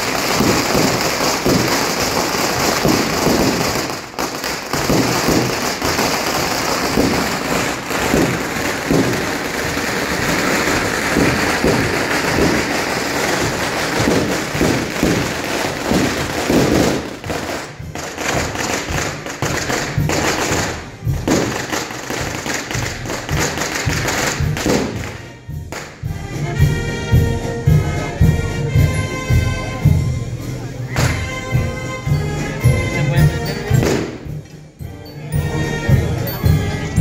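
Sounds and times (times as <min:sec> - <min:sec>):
firecrackers crackling: 0:00.0 - 0:37.0.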